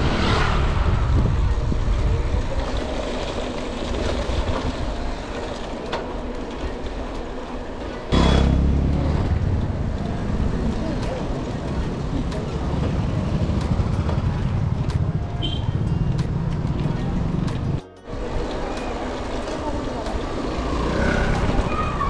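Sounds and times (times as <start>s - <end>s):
vehicle passing: 0.0s - 1.8s, 8.1s - 15.2s, 16.0s - 22.0s
wind rumble on microphone: 0.0s - 5.3s
traffic: 0.0s - 22.0s.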